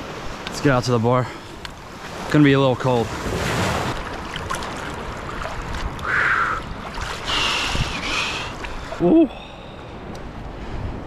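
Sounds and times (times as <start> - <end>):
rushes of water: 0.0 - 11.0
seawater sloshing around legs: 3.1 - 9.0.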